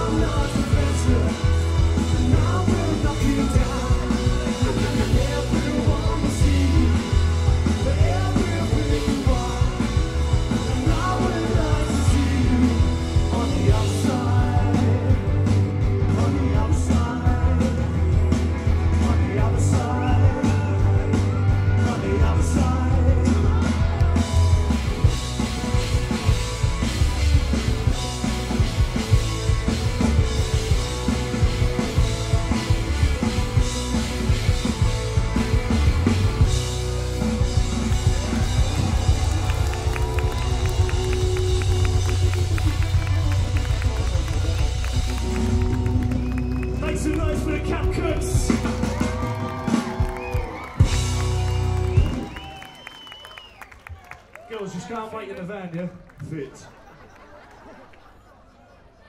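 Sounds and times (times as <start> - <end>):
person singing: 0.0 - 24.6
rock band playing: 0.0 - 53.2.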